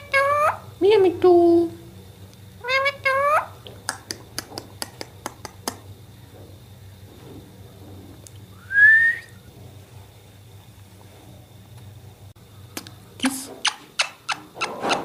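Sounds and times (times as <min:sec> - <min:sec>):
parakeet sharp clicks: 0:03.8 - 0:05.8
rising whistle: 0:08.6 - 0:09.4.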